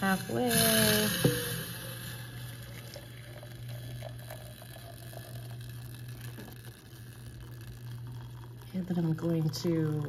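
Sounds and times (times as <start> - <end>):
low hum: 0.0 - 10.0
water pouring into glass jar: 0.0 - 10.0.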